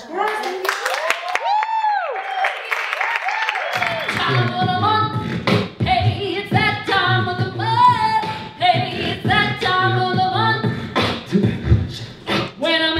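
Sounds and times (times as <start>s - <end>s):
voices singing a cappella: 4.0s - 12.9s
percussive mouth sounds: 4.1s - 5.9s, 10.6s - 12.6s.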